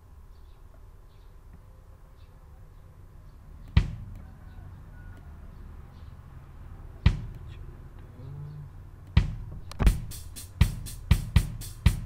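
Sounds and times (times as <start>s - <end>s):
kick drum thumps: 3.8s - 4.2s, 7.0s - 7.5s, 9.1s - 12.0s
hi-hat strokes: 7.0s - 7.7s, 9.0s - 12.0s
single drum hit: 9.2s - 10.1s.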